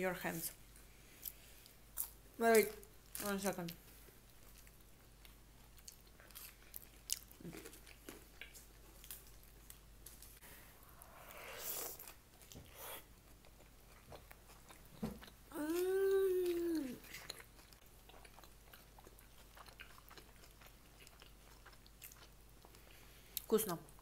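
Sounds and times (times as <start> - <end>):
person biting and chewing food: 5.6 - 9.6.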